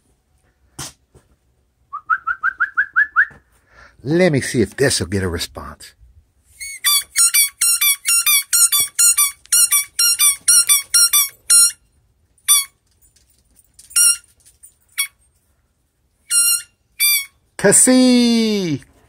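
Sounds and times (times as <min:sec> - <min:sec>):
squeaky ball squeaking: 0:06.6 - 0:11.8, 0:12.5 - 0:12.8, 0:13.9 - 0:14.3, 0:16.3 - 0:17.4.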